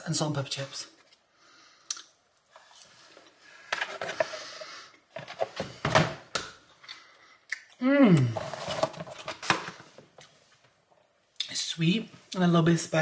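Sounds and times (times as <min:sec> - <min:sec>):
person chewing: 0:01.8 - 0:03.2, 0:06.7 - 0:08.4.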